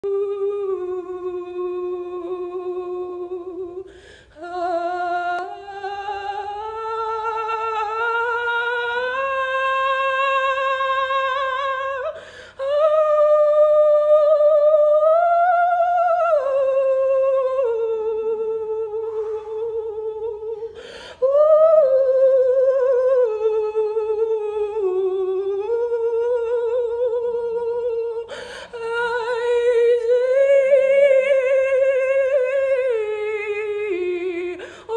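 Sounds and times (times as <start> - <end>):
woman singing wordless held notes: 0.0 - 34.9
quick breath: 3.9 - 4.4, 12.2 - 12.6, 20.5 - 21.2, 28.3 - 28.7, 34.6 - 34.9.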